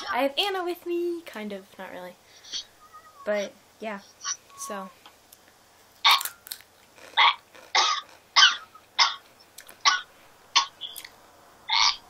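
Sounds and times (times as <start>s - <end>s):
person coughing: 7.8s - 8.0s.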